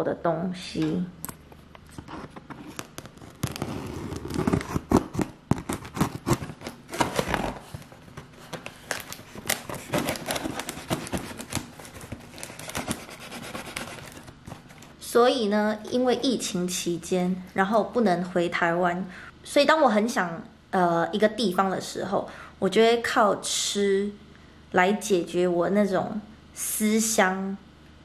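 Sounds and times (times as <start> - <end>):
tape crackling and tearing: 2.0 - 15.0
scissors cutting packing tape: 2.8 - 7.5, 8.9 - 14.7.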